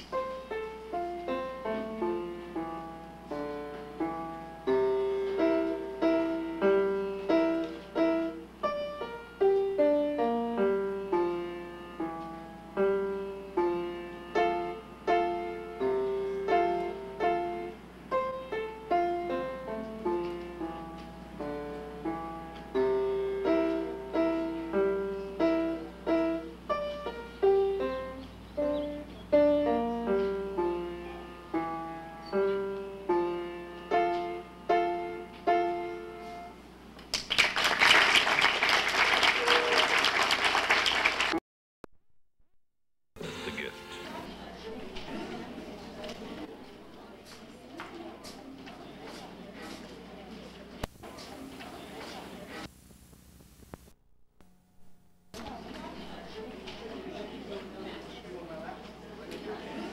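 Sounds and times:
piano melody: 0:00.0 - 0:36.6
low electrical hum: 0:00.0 - 0:41.3, 0:43.2 - 0:59.8.

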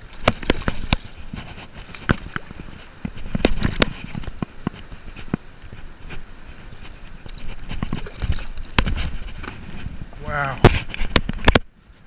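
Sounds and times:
fish thrashing and splashing: 0:00.0 - 0:05.3, 0:06.5 - 0:09.8.

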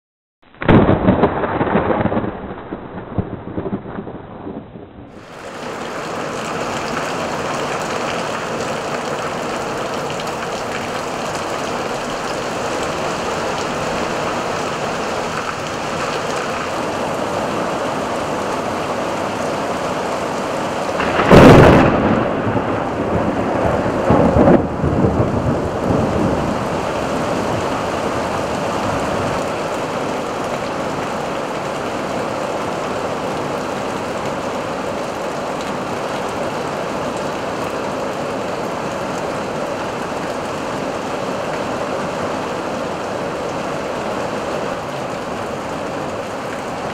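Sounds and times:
thunder crack and rumble: 0:00.4 - 0:08.0, 0:21.0 - 0:30.7
heavy rain pouring: 0:00.4 - 0:46.9.

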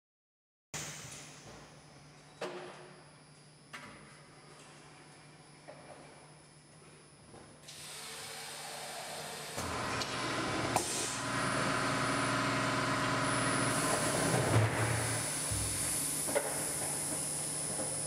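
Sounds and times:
motor whine and hum: 0:07.7 - 0:18.0
compressed air hissing: 0:14.9 - 0:17.7.

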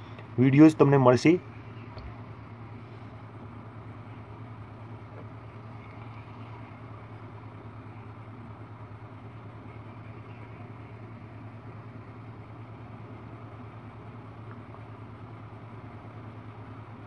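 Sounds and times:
low mechanical hum with flutter: 0:00.0 - 0:17.0.

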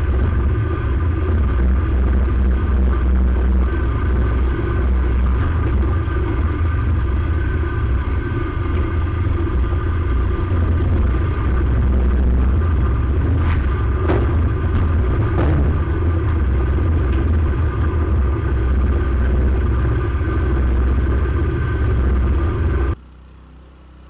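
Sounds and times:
small engine running: 0:00.0 - 0:24.0
sharp knocks: 0:13.5 - 0:17.2.

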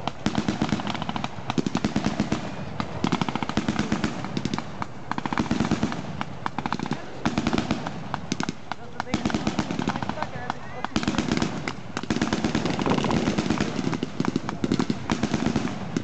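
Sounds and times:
machine guns firing bursts: 0:00.0 - 0:16.0.

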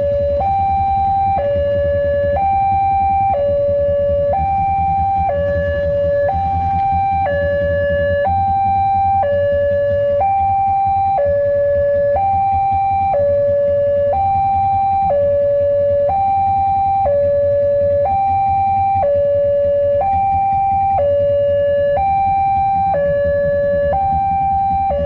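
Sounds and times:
low rumble: 0:00.0 - 0:10.2
level crossing two-tone alarm: 0:00.0 - 0:25.0.

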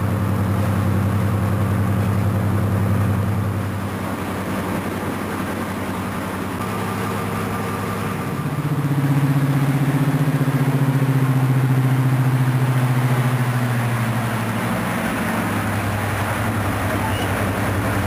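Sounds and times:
diesel locomotive engine throbbing: 0:00.0 - 0:18.0.

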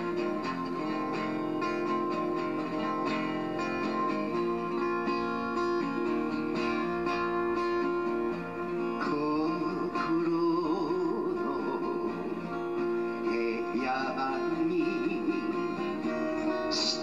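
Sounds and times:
acoustic guitar playing slow song: 0:00.0 - 0:17.0
man singing: 0:08.6 - 0:17.0.

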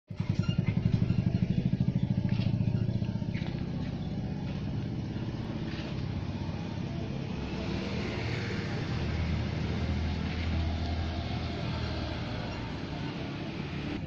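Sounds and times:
small engine puttering: 0:00.1 - 0:07.0.

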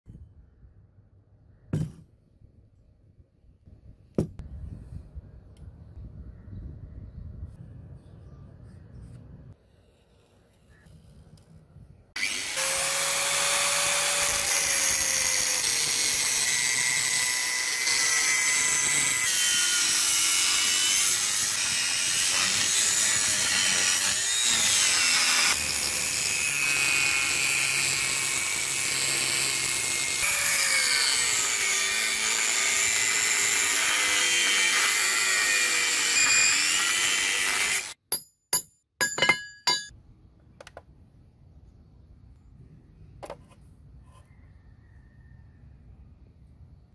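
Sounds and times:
angle grinder cutting steel: 0:12.2 - 0:38.0.

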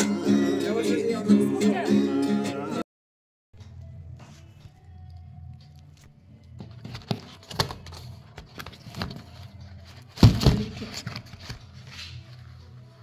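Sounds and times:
thumps: 0:10.1 - 0:11.3.

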